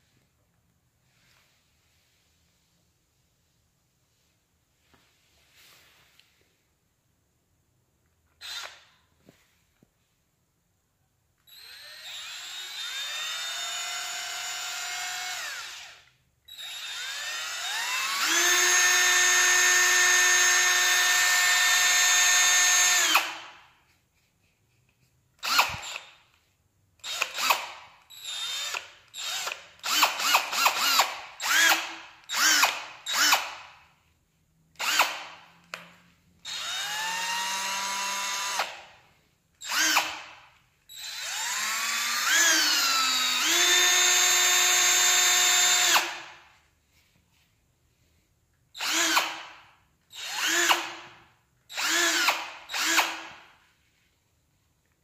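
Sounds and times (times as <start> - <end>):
cordless drill motor whining: 8.4 - 8.9, 11.5 - 23.5, 25.4 - 26.2, 27.0 - 33.5, 36.4 - 38.8, 39.6 - 40.3, 40.9 - 46.3, 48.8 - 49.5, 50.1 - 51.0, 51.7 - 53.4.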